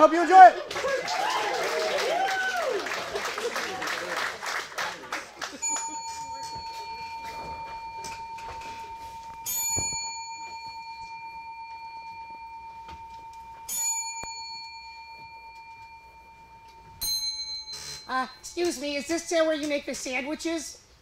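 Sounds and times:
bell ringing: 5.6 - 19.1.

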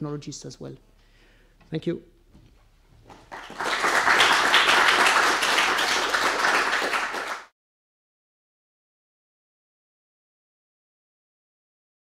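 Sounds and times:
audience applauding: 3.1 - 7.5.

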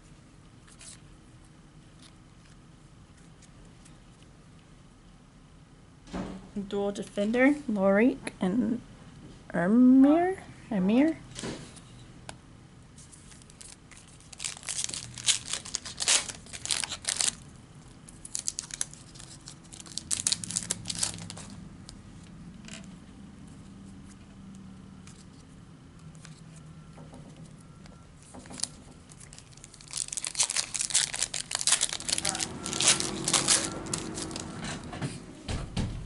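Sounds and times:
wrappers crinkling: 13.1 - 21.6, 28.3 - 34.9
foil packs tearing: 13.4 - 17.4, 18.2 - 21.6, 28.6 - 34.8.

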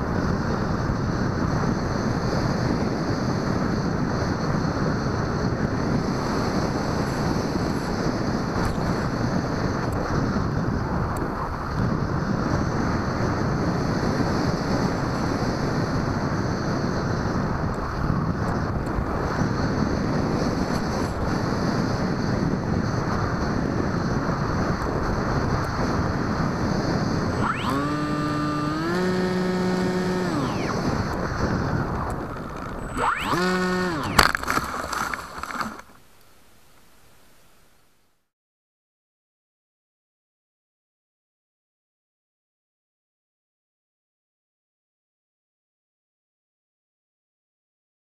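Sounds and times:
wind rushing on microphone: 0.0 - 36.0.

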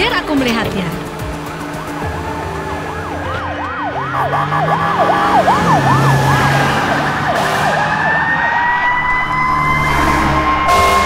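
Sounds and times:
fire engine siren: 1.6 - 11.0.

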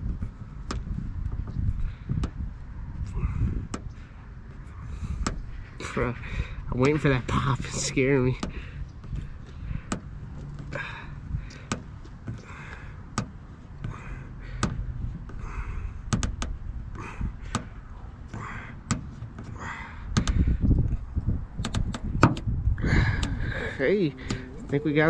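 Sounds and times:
handling rumble: 0.0 - 25.0
dent puller knob clicking: 21.6 - 22.5.

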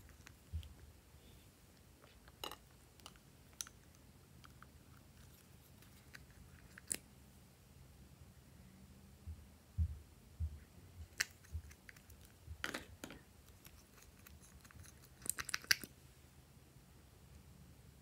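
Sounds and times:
soft low thumps: 9.2 - 11.7.

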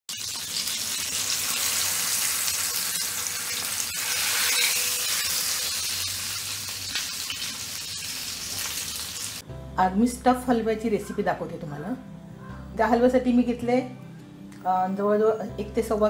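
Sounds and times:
oil sizzling around frying fish: 0.1 - 9.4.

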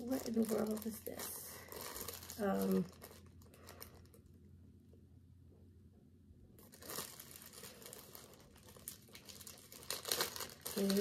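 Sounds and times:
plastic bag crinkling: 0.0 - 4.3, 6.6 - 11.0.

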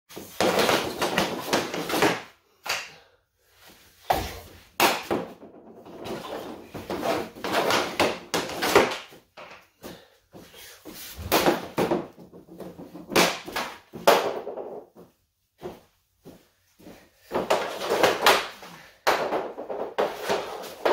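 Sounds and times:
hockey stick scraping on concrete: 0.1 - 2.3, 5.9 - 9.6, 17.4 - 20.9
sharp cracks of puck shots: 4.8 - 5.3, 7.5 - 9.1, 11.2 - 12.0, 13.1 - 14.6, 17.5 - 20.9.

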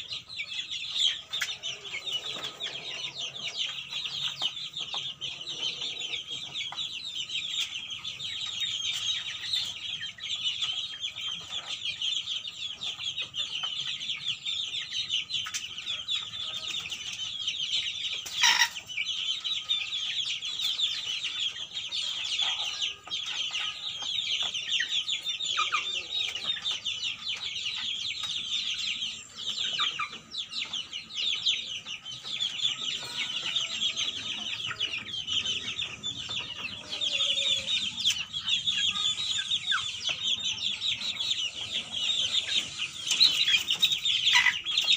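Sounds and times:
chicks peeping and cheeping: 0.0 - 44.9.

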